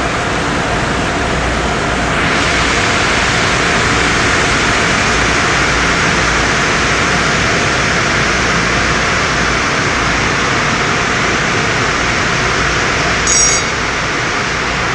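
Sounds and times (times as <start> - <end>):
car wash machinery hum: 0.0 - 14.9
water spray blasting car: 1.4 - 14.9
sharp loud sound: 13.2 - 14.0.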